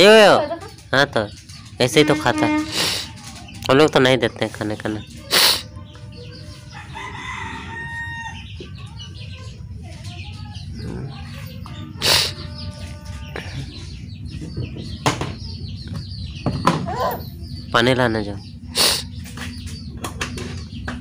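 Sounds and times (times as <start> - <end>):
chicken calls: 0.0 - 21.0
rooster crowing: 6.7 - 8.5.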